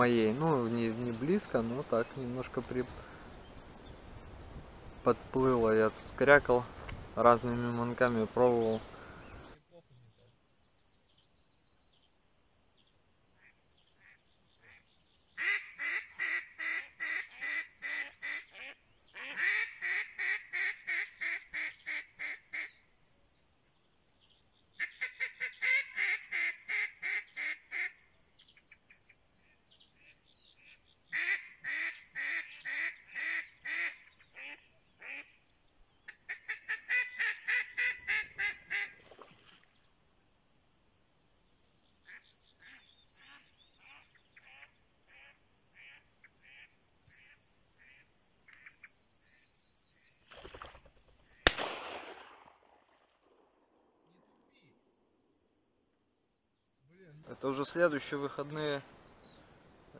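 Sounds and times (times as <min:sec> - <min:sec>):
duck call quacks: 0:15.4 - 0:22.7, 0:24.8 - 0:28.0, 0:31.1 - 0:35.3, 0:36.3 - 0:38.9.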